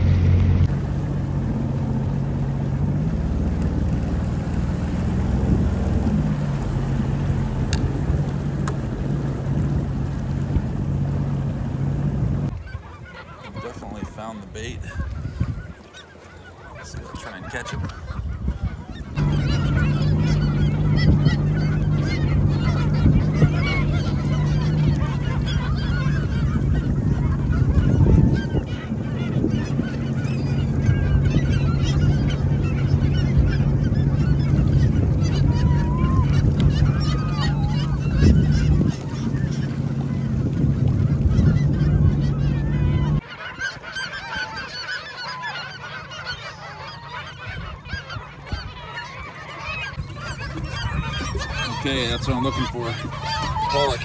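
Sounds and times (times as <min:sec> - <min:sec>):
watercraft engine idling: 0:00.0 - 0:12.6, 0:13.2 - 0:54.0
gulls calling and squabbling: 0:00.0 - 0:54.0.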